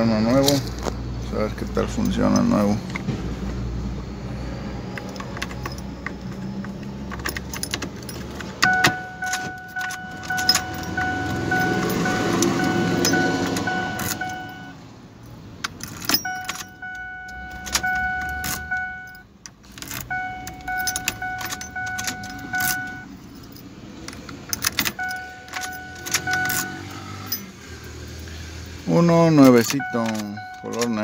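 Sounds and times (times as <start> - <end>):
keys jangling: 1.8 - 3.0, 4.9 - 28.3, 29.3 - 31.0
key clicking in ignition lock: 4.9 - 14.8, 15.6 - 27.5, 29.3 - 31.0
electronic warning tone: 8.6 - 14.8, 16.2 - 19.2, 20.1 - 23.1, 25.0 - 27.4, 29.3 - 31.0.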